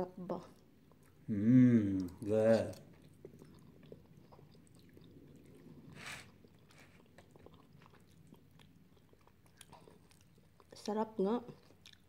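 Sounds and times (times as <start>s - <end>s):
person chewing: 1.8s - 10.9s, 11.5s - 12.0s.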